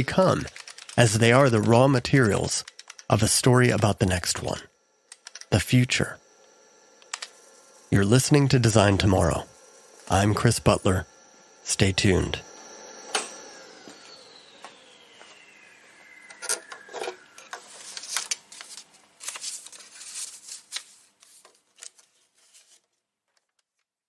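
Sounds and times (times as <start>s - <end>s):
downward sliding electronic tone: 5.9s - 18.0s.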